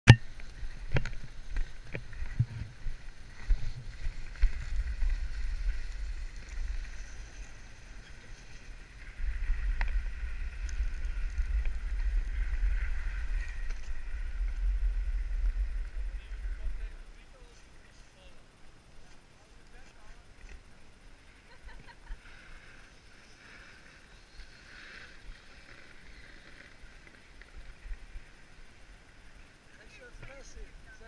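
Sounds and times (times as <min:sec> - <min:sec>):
wind rumble on microphone: 0:00.1 - 0:17.5
snowboard scraping over snow: 0:00.6 - 0:17.0.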